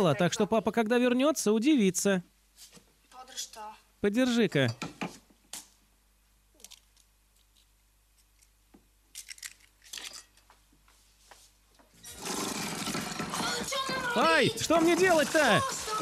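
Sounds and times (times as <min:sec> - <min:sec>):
crinkling: 0:06.6 - 0:10.5
kitchen things rustling and clicking: 0:09.2 - 0:10.6.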